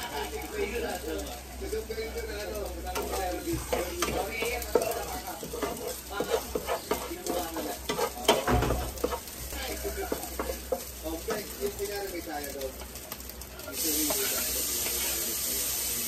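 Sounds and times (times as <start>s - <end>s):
meat sizzling in a pan: 0.0s - 16.0s
utensil scraping and clicking pan: 2.9s - 9.4s, 10.1s - 11.5s.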